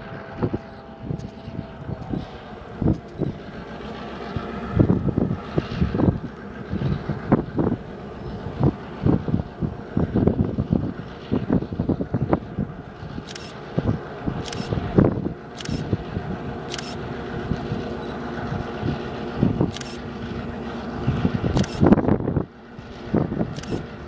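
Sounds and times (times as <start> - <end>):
diesel locomotive engine drone: 0.0 - 24.0
wind buffeting microphone: 0.0 - 24.0
camera shutter clicks: 13.3 - 13.6, 14.4 - 14.7, 15.6 - 15.8, 16.7 - 17.0, 19.7 - 20.0, 21.6 - 21.8, 23.6 - 23.8.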